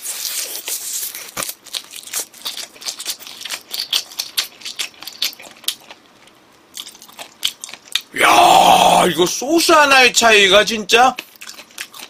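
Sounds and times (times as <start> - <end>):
chewing crunchy fried chicken: 0.0 - 8.2, 11.0 - 12.0.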